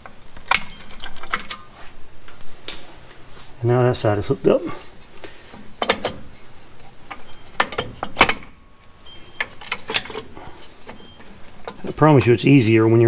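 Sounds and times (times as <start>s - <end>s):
metal clicks and clinks: 9.4s - 10.3s.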